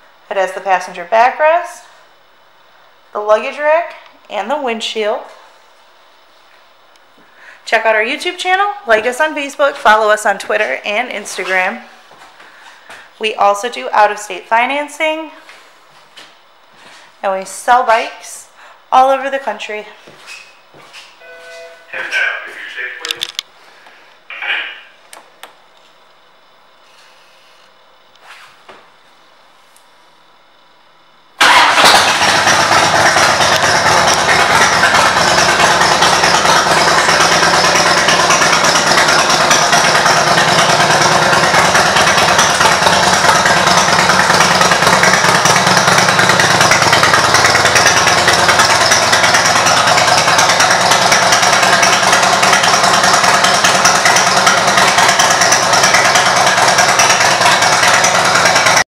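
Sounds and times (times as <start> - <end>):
motorcycle engine starting and idling: 31.4 - 58.8.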